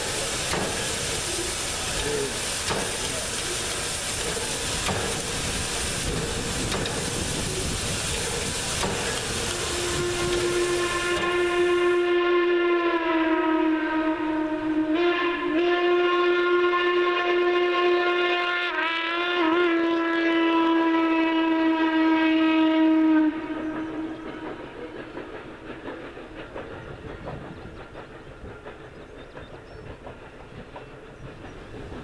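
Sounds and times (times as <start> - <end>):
steam locomotive hissing: 0.0 - 32.0
steam whistle blast: 8.4 - 24.8.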